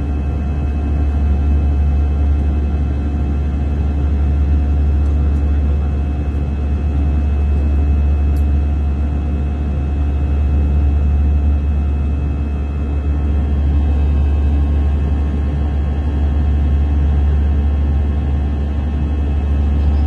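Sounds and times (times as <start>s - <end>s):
airliner cabin rumble: 0.0s - 20.0s.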